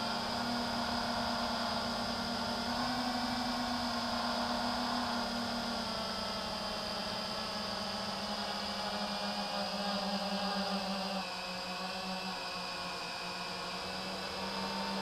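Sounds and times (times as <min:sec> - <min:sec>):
drone motors whining: 0:00.0 - 0:15.0.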